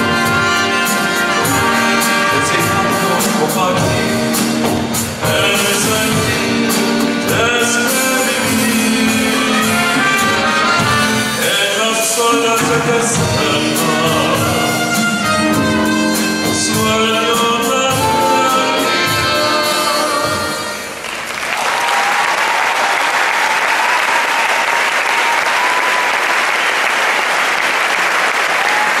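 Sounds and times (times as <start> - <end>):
slow rumba song: 0.0 - 21.0
audience applause: 20.9 - 29.0.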